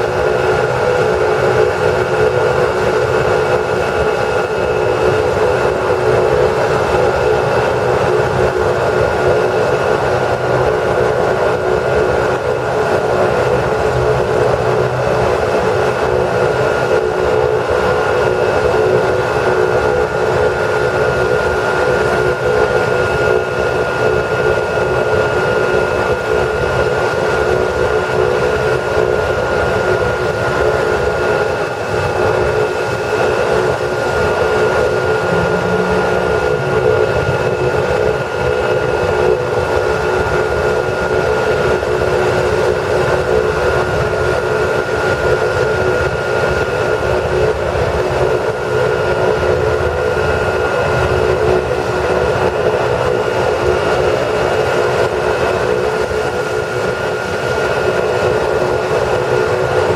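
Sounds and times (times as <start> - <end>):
helicopter rotor and engine noise: 0.0 - 59.9
high turbine whine: 0.0 - 59.9.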